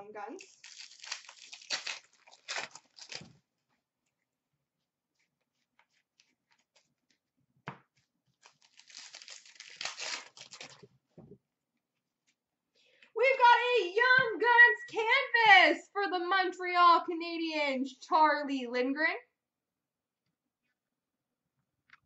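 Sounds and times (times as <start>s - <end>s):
wrapper tearing and crinkling: 0.3s - 3.4s, 8.4s - 10.9s.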